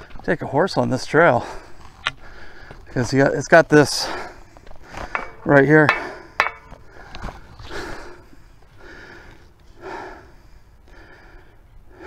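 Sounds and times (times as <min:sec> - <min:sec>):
man breathing hard: 0:01.4 - 0:02.9, 0:04.0 - 0:12.0.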